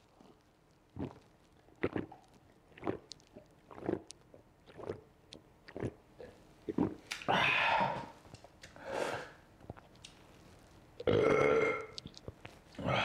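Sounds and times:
man burping: 11.1 - 12.0.

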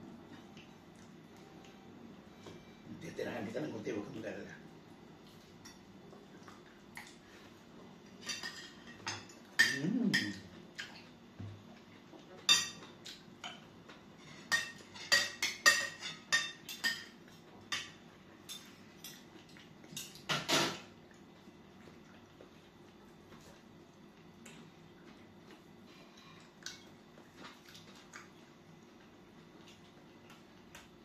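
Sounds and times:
cutlery clinking on tableware: 8.2 - 11.0, 12.4 - 19.3, 19.9 - 20.9.

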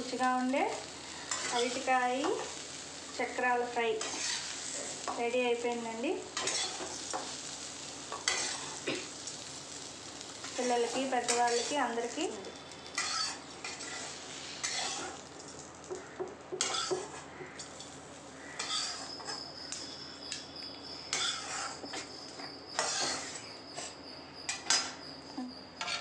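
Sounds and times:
spatula scraping a metal pan: 1.2 - 2.6, 4.0 - 5.2, 6.4 - 7.4, 8.1 - 8.8, 11.0 - 11.8, 12.9 - 15.2, 16.6 - 17.3, 18.6 - 19.8, 21.1 - 22.1, 22.7 - 25.0, 25.8 - 26.0.

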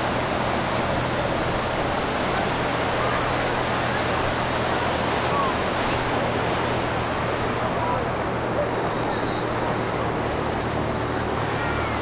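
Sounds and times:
ocean surf washing onto beach: 0.0 - 12.0.

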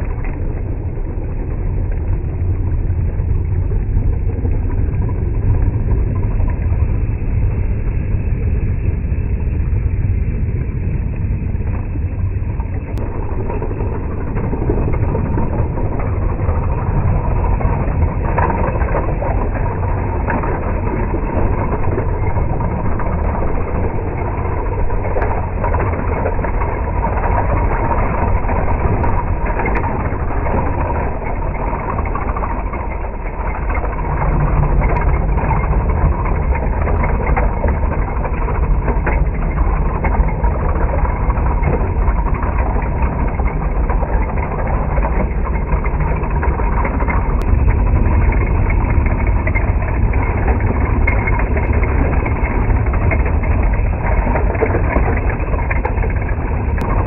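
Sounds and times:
tracks rattling: 11.6 - 57.0.

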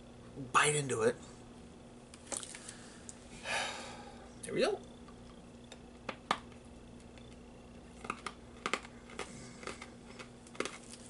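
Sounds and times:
hard candy cracking between teeth: 5.7 - 11.0
candy crunching: 7.8 - 11.0.

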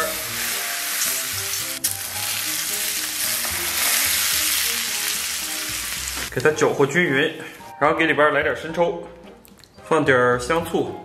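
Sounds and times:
hot oil sizzling: 0.0 - 6.9.

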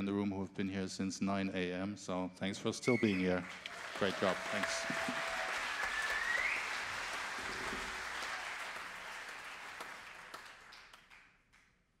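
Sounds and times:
audience applause: 3.0 - 11.3.

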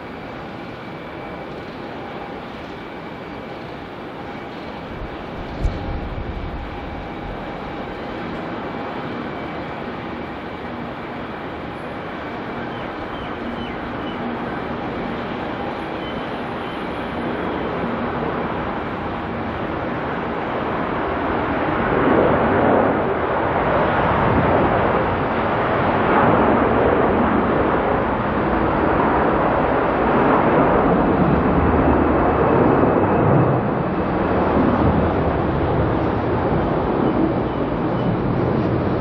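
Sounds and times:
faint high whine: 0.0 - 21.4
jet engine roar: 0.0 - 39.0.

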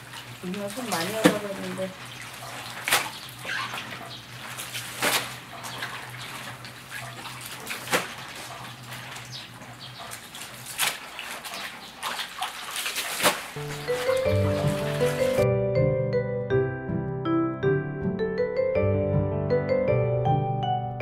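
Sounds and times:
sharp water splashes: 0.0 - 15.4
water sloshing in tubs: 0.0 - 15.4.

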